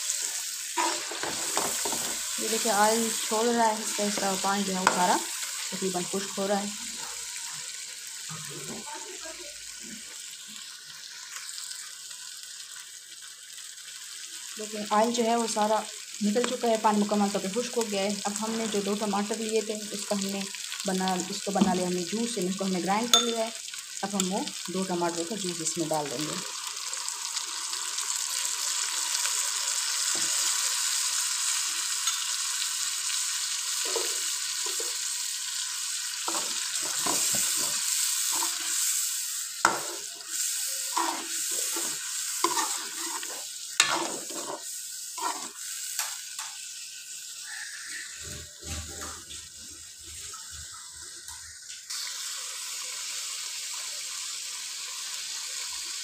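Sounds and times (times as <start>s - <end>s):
chicken sizzling in hot oil: 0.0s - 56.0s
spatula scraping a pan: 0.8s - 2.6s, 36.3s - 46.2s.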